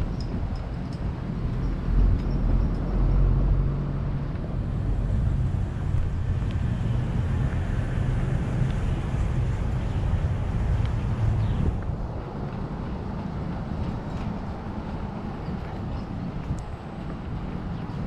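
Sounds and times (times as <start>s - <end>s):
low traffic rumble: 0.0s - 18.0s
vehicle engine running: 1.4s - 15.3s.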